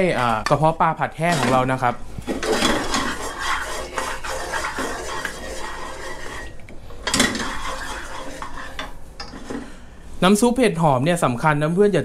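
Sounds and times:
wooden spatula scraping a wok: 1.2 - 9.8.

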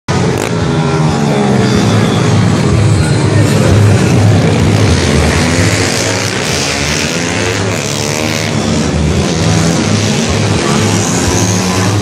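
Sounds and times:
motorcycles revving past: 3.4 - 12.0.

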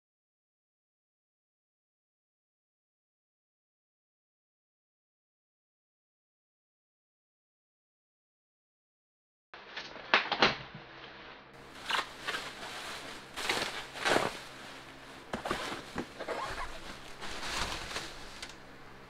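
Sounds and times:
bubble wrap crinkling: 11.6 - 18.6
cardboard being handled: 11.6 - 18.6.

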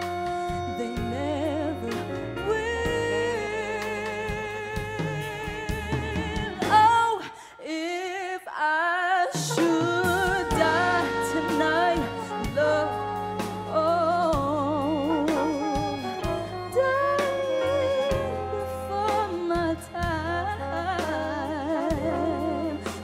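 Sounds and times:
live band playing soul ballad: 0.0 - 7.2, 9.2 - 23.0
woman singing with vibrato: 0.0 - 23.0.

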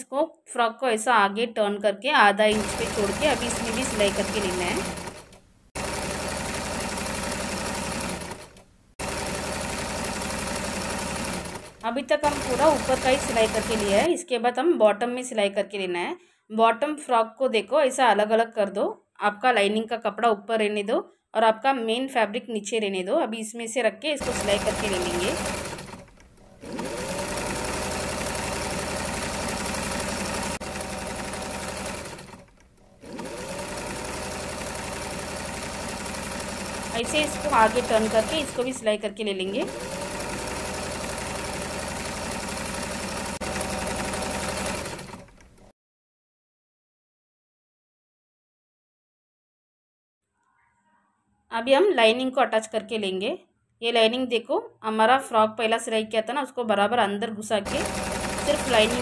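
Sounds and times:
sewing machine stitching: 2.5 - 14.1, 24.2 - 45.7, 57.6 - 59.0.

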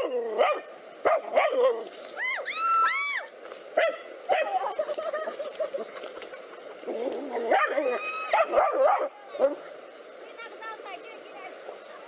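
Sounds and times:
dogs barking: 0.0 - 1.8, 3.8 - 9.6
dogs yelping: 0.0 - 1.9, 3.8 - 9.6.

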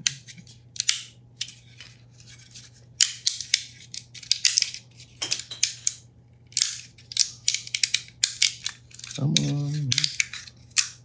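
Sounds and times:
plastic cracking and snapping: 5.9 - 11.0.

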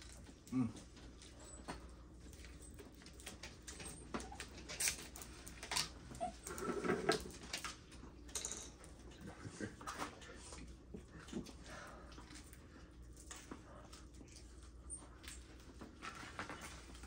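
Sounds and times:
dog whining softly: 5.7 - 7.1.

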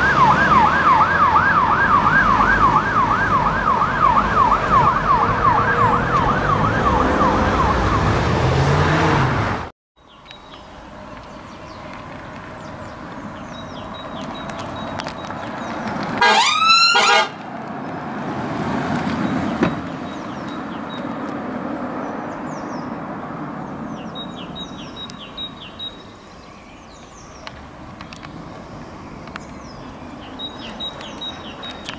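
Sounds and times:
police siren whoop: 0.0 - 8.4, 16.2 - 17.3
birds chirping: 10.0 - 18.0, 19.2 - 21.3, 21.9 - 31.9.

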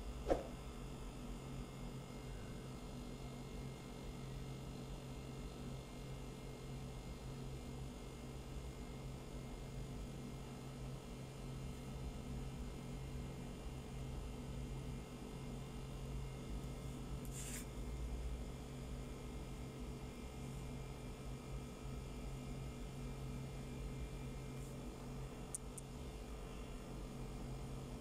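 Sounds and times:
steady low hum: 0.0 - 28.0
tiny ticks: 25.5 - 25.9.

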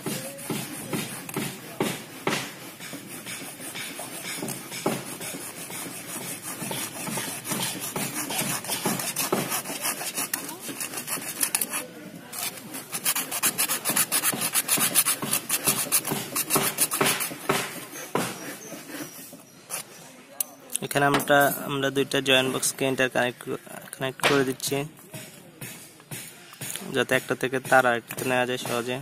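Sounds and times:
hacksaw sawing plastic conduit: 0.0 - 19.9.

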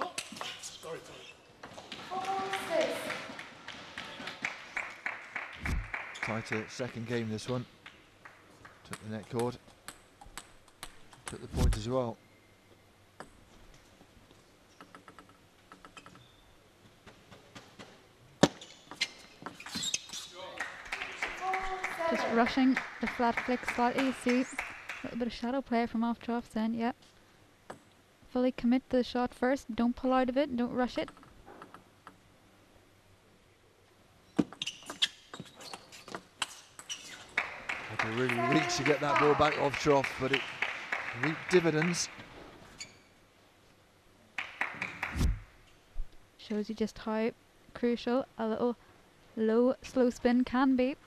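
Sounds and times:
table tennis ball bouncing: 7.4 - 11.4, 34.4 - 39.7.

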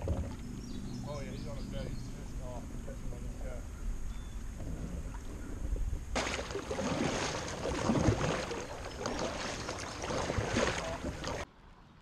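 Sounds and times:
wind rumble on microphone: 1.6 - 6.2
kayak paddle splashing: 5.1 - 11.5
water washing along hull: 5.1 - 11.5.

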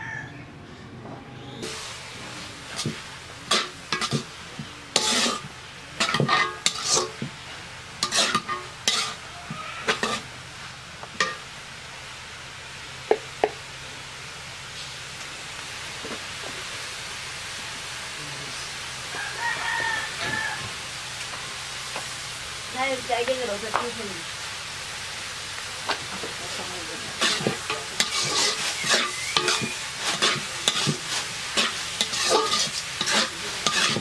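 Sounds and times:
onions sizzling in oil: 1.6 - 34.0
metal spatula scraping pan: 2.7 - 4.3, 4.9 - 7.3, 8.0 - 10.3, 27.1 - 34.0.

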